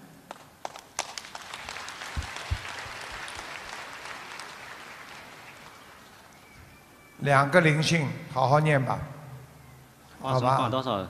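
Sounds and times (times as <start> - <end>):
audience applauding: 0.3 - 6.8.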